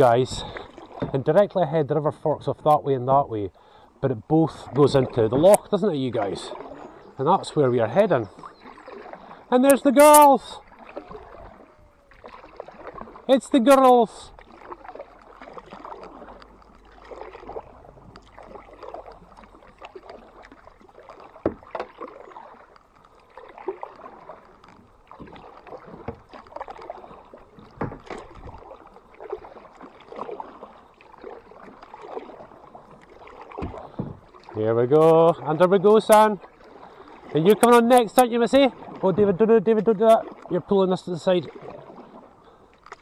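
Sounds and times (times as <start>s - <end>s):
paddle strokes in water: 0.0s - 43.0s
water splashes and drips: 0.0s - 43.0s
sharp knocks: 33.6s - 34.2s.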